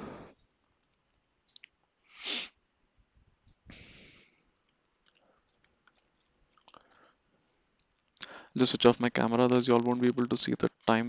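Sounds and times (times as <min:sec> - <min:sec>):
sharp sniff: 0:02.1 - 0:02.6, 0:03.7 - 0:04.4
soft breath: 0:03.7 - 0:04.6, 0:06.7 - 0:08.6.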